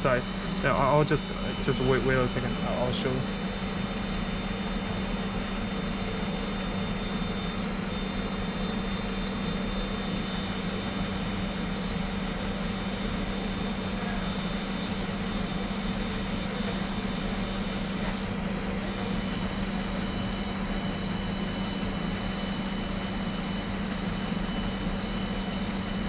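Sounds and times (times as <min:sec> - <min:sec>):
faint high whines: 0:00.0 - 0:03.3
mechanical drone with low hum: 0:00.0 - 0:26.0.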